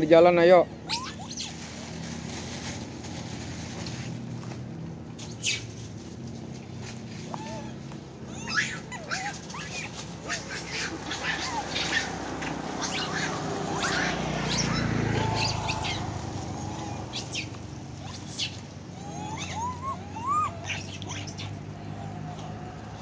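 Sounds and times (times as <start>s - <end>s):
motorbike engine hum: 0.0s - 23.0s
monkey rising and falling calls: 0.6s - 2.0s, 5.2s - 5.8s, 7.2s - 23.0s
monkeys squeaking and chirping: 0.6s - 2.0s, 5.2s - 6.4s, 7.3s - 23.0s.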